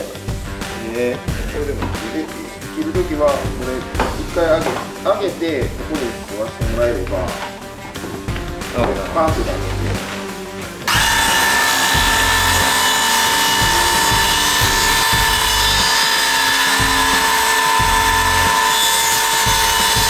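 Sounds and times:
circular saw cutting wood: 10.8 - 20.0.

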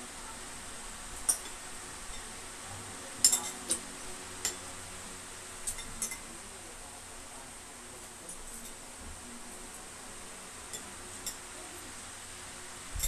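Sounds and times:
cutlery clinking against bowls: 3.2 - 3.8, 5.6 - 6.3, 10.7 - 11.4.

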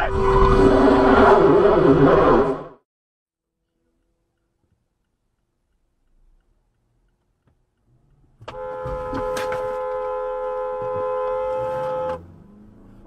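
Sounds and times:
car horn blast: 8.5 - 12.2.

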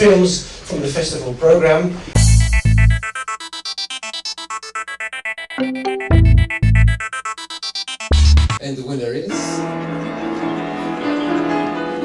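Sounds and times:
fast synthesizer notes: 2.2 - 8.6.

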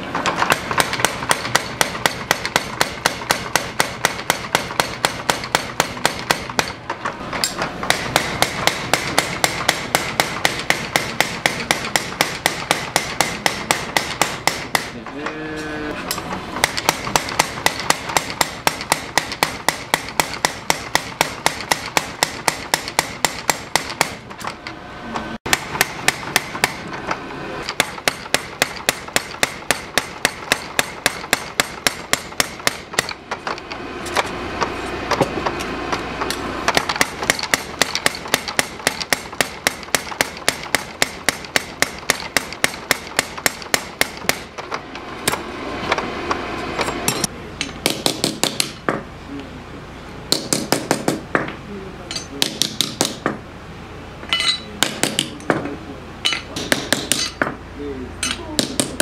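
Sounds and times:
power hammer beating steel: 0.0 - 15.7, 16.5 - 24.6, 25.4 - 27.0, 27.6 - 44.6, 56.2 - 57.5.

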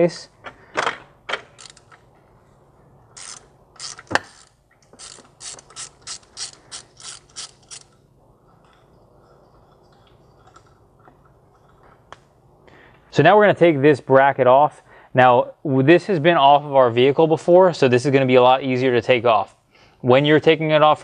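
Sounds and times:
socket ratchet clicking: 1.4 - 2.0, 3.2 - 8.0.

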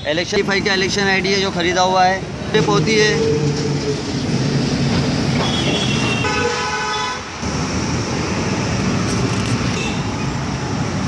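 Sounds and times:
street traffic noise: 0.0 - 11.0
vehicle horn honking: 5.4 - 7.3.

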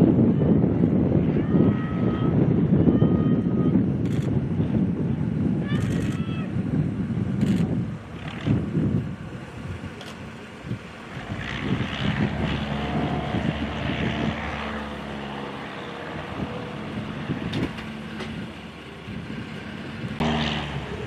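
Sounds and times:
propeller airplane engine buzzing: 0.0 - 21.0.

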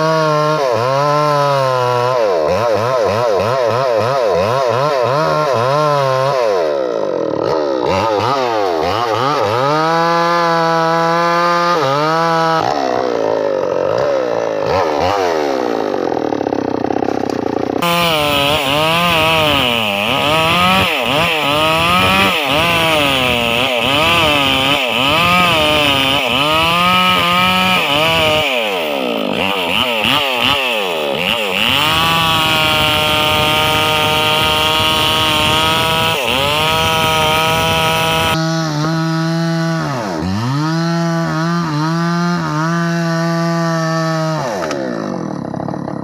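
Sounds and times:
chainsaw cutting wood: 0.0 - 46.0.

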